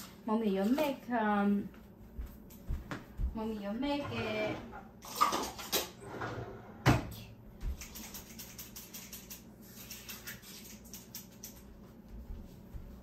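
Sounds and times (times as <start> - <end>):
utensils clicking on dishes: 7.8 - 11.6.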